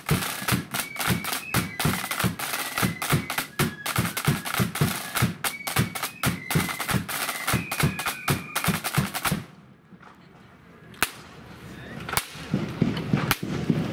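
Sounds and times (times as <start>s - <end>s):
flutes playing high melody: 0.0s - 9.3s
side drums rattling rolls: 0.0s - 9.5s, 12.0s - 13.9s.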